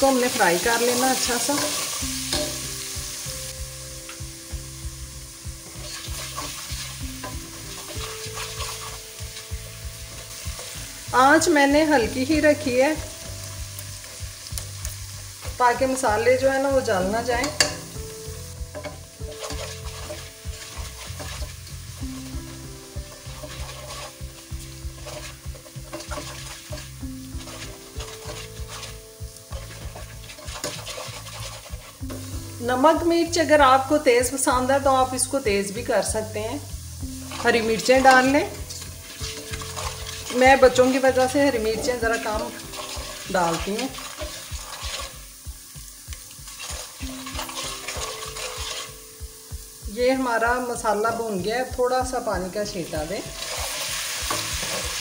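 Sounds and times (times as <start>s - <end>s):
spices sizzling in hot oil: 0.0s - 55.0s
spoon scraping a pot: 5.7s - 9.1s, 18.7s - 21.6s, 23.2s - 32.0s, 41.6s - 45.2s, 46.6s - 49.0s.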